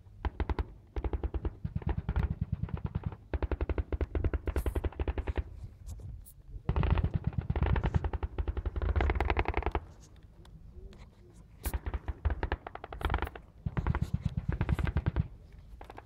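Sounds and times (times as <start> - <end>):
automatic gunfire bursts: 11.6 - 15.4.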